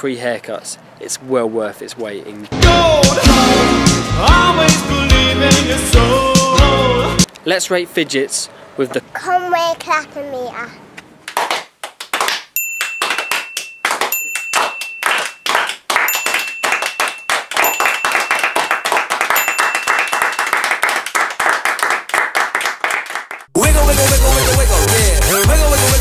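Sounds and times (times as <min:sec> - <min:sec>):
group clapping: 0:11.2 - 0:23.6
thin high tone: 0:12.6 - 0:20.6.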